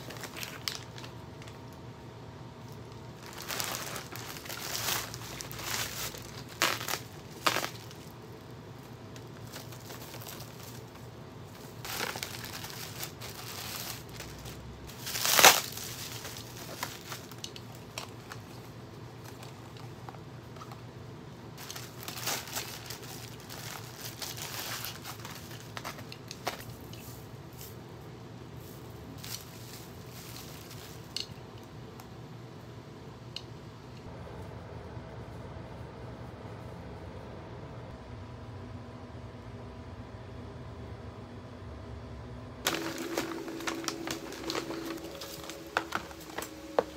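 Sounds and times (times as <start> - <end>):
packaging crinkling and rustling: 0.0 - 1.8, 2.7 - 20.8, 21.6 - 27.8, 28.6 - 31.4, 42.7 - 46.9.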